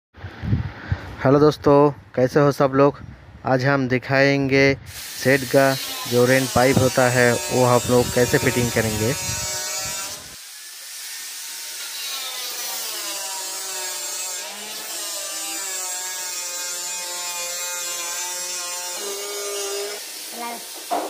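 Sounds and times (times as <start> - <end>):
angle grinder cutting plastic pipe: 4.9 - 21.0.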